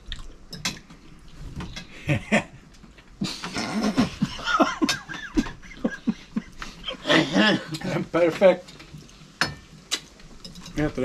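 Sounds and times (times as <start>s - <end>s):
people laughing high-pitched: 3.4s - 7.8s.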